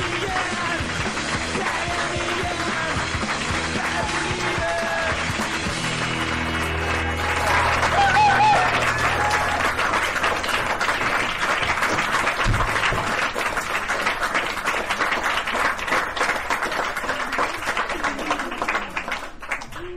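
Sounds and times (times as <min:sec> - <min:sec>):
music track: 0:00.0 - 0:10.8
people clapping: 0:00.0 - 0:19.9.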